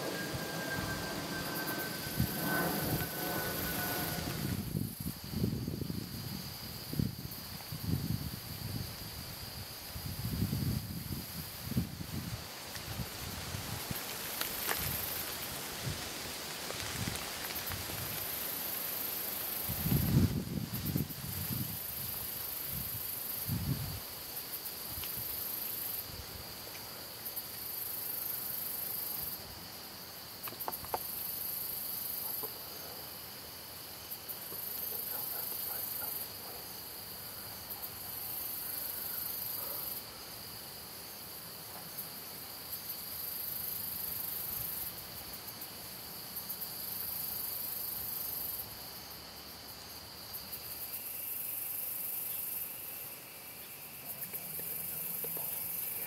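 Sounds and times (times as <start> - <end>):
thin high insect buzz: 0.0 - 5.4
high-pitched insect trill: 0.0 - 56.0.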